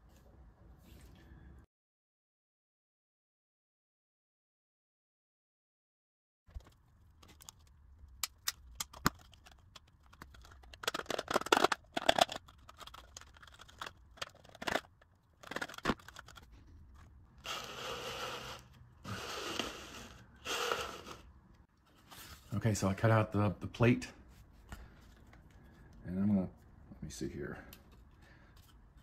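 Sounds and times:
saw rasping through plastic: 17.4s - 21.3s.

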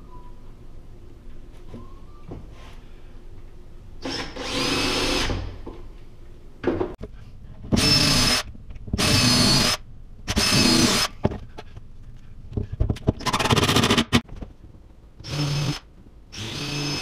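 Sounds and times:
cordless drill motor whining: 15.2s - 17.0s.

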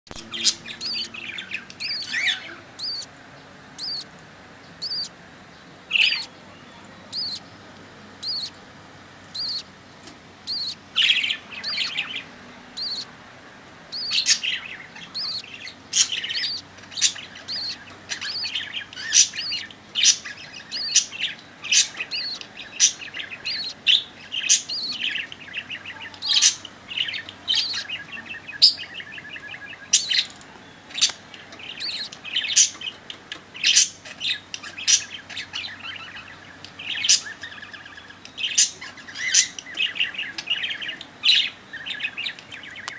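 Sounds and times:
budgerigars chirping: 0.1s - 5.2s, 5.8s - 42.9s.

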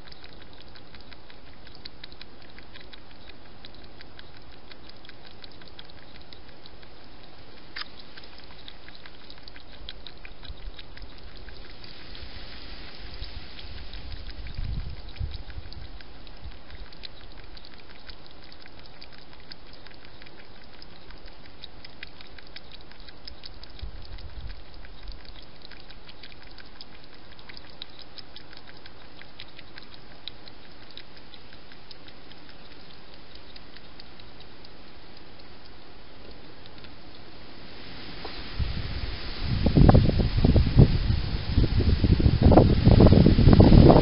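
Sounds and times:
hedgehog mouth clicks: 0.0s - 12.2s, 12.9s - 37.2s
steady hiss: 11.5s - 15.4s, 36.2s - 44.0s.

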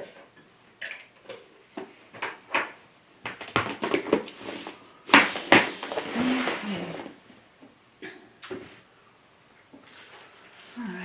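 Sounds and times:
plastic box knocks and rustles: 3.2s - 4.3s.

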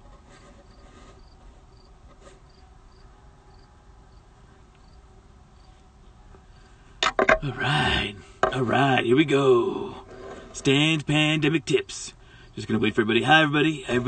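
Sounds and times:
low background hiss: 0.0s - 14.0s
insect chirping: 0.6s - 5.8s, 12.2s - 12.6s.

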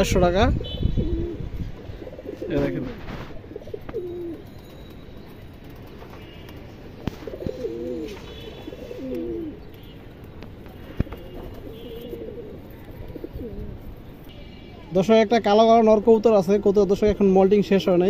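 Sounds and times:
pigeons cooing: 0.0s - 4.7s, 5.6s - 14.2s.

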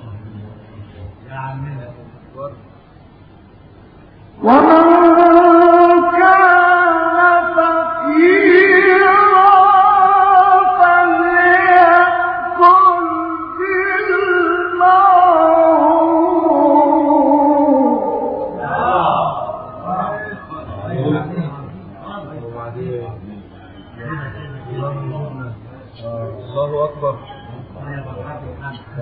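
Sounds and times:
man chanting recitation: 4.4s - 29.0s.

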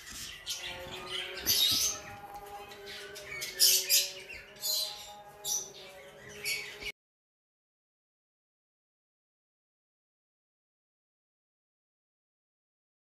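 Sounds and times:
parrots chirping and squawking: 0.0s - 6.9s.

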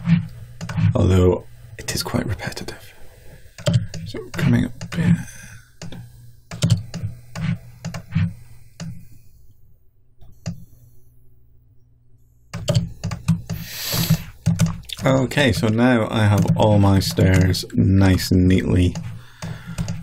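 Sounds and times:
keyboard and mouse clicks: 3.6s - 5.0s, 5.8s - 8.1s, 10.2s - 10.7s, 12.5s - 15.7s, 18.9s - 20.0s.

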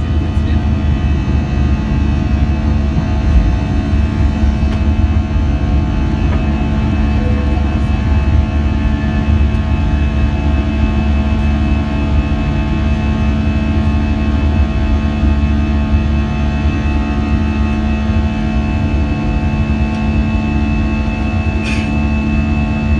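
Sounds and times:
jet engines rumbling in cabin: 0.0s - 22.9s.

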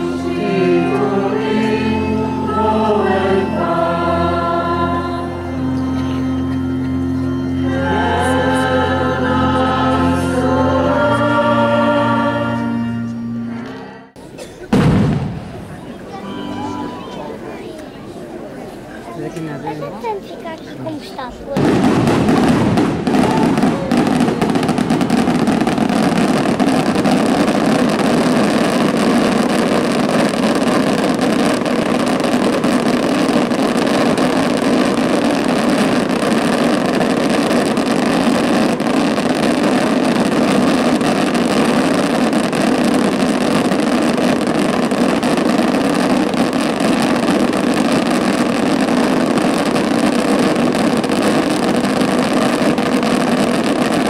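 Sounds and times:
fireworks bangs and crackles: 14.3s - 16.2s, 20.2s - 54.0s.

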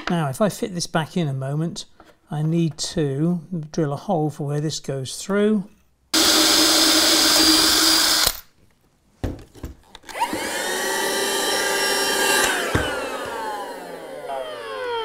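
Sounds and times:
cordless drill boring: 6.2s - 8.4s, 10.1s - 15.0s
handheld vacuum whining: 6.2s - 8.4s, 10.0s - 15.0s.

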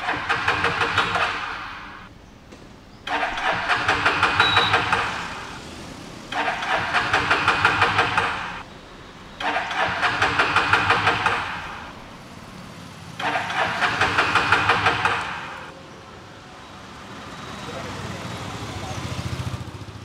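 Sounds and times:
motorcycle starter cranking: 0.0s - 2.1s, 3.0s - 8.7s, 9.3s - 12.3s, 13.2s - 15.7s.

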